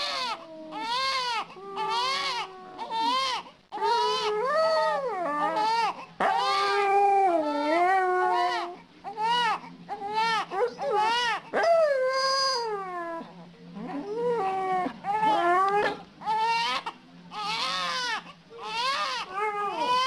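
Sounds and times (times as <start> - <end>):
baby crying: 0.0 - 4.5, 15.0 - 20.0
dog howling: 0.0 - 16.7, 18.6 - 20.0.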